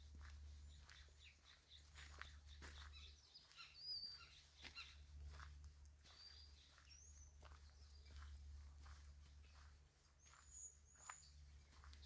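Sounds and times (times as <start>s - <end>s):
faint footsteps on forest ground: 0.0s - 12.0s
high bird chirps: 0.8s - 5.0s, 9.4s - 11.8s.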